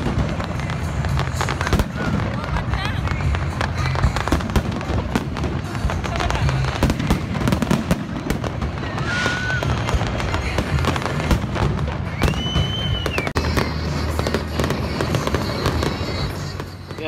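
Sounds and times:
fireworks bangs and crackling: 0.0s - 17.0s
firework whistles: 8.8s - 11.2s, 11.8s - 16.8s.

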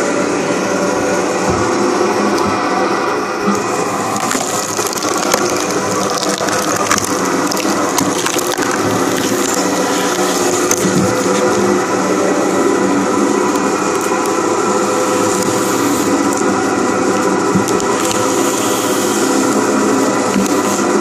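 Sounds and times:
log splitter running: 0.0s - 21.0s
wood cracking and splintering: 4.0s - 11.4s.

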